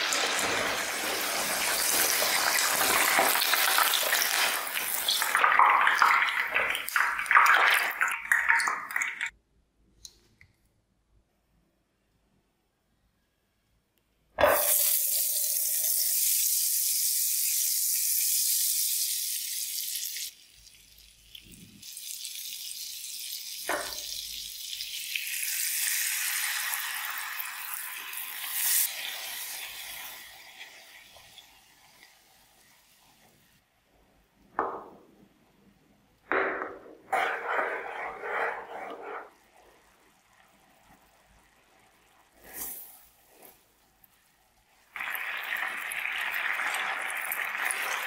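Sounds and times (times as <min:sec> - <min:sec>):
fat sizzling in frying pan: 0:00.0 - 0:08.0, 0:14.4 - 0:33.6, 0:37.1 - 0:48.0
milk sizzling in hot fat: 0:00.0 - 0:09.1, 0:14.4 - 0:33.6, 0:37.1 - 0:48.0.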